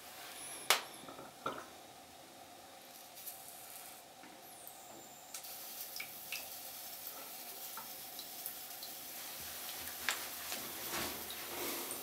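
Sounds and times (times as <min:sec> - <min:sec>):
water fizzing and spattering: 0:05.2 - 0:12.0.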